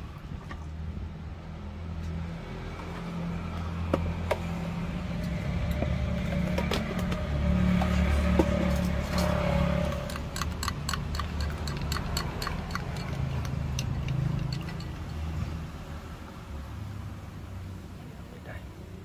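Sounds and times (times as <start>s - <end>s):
road traffic rumble: 0.0s - 19.0s
vehicle passing: 0.9s - 19.0s
light clinks: 10.1s - 15.6s.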